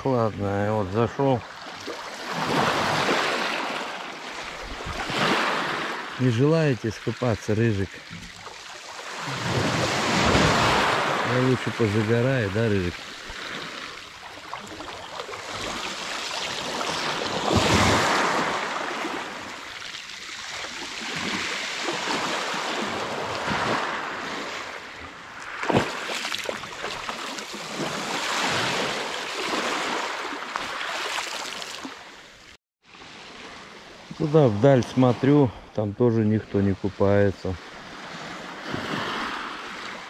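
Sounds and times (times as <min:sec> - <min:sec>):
waves breaking on pebbles: 0:01.6 - 0:24.7, 0:25.3 - 0:32.0.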